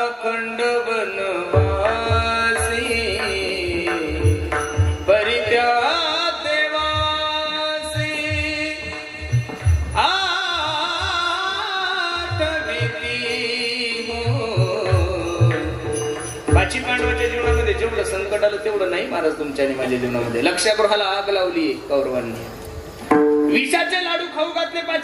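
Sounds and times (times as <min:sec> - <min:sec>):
man singing devotional phrases: 0:00.0 - 0:04.4, 0:05.1 - 0:15.8
hand-drum beats: 0:01.5 - 0:20.4, 0:22.8 - 0:23.7.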